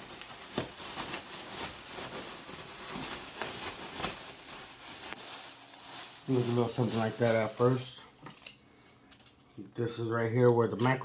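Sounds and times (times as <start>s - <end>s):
plastic bag rustling and crinkling: 0.0s - 8.5s.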